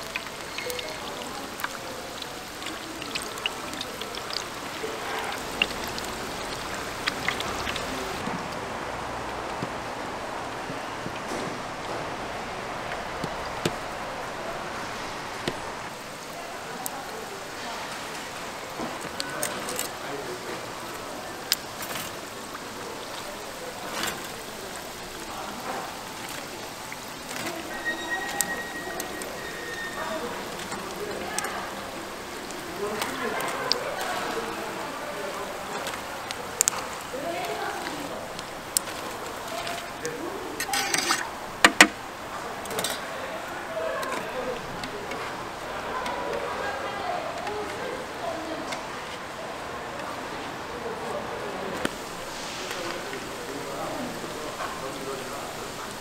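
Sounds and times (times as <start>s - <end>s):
food sizzling in hot oil: 0.0s - 8.2s, 17.3s - 42.0s, 51.9s - 56.0s.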